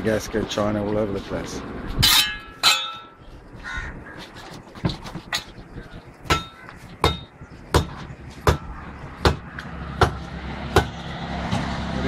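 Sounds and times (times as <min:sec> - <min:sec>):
sharp rhythmic knocks: 0:06.2 - 0:11.1.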